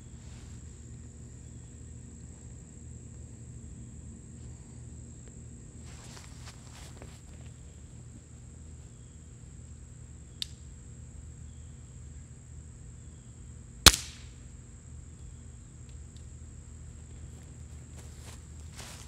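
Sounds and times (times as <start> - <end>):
faint click: 10.4 - 10.6
air rifle pellet hitting phone: 13.9 - 14.3.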